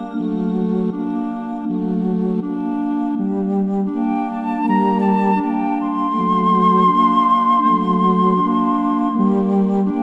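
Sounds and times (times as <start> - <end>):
sustained chord music: 0.0 - 10.0.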